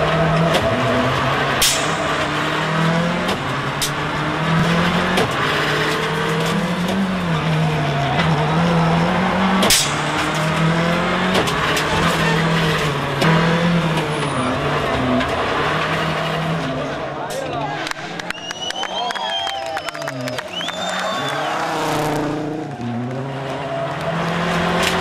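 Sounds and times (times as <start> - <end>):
rally car engine accelerating: 0.0 - 25.0.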